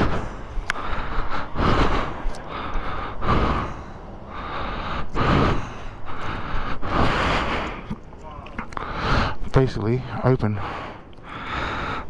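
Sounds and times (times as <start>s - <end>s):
person breathing heavily: 0.0s - 8.0s, 8.6s - 12.0s.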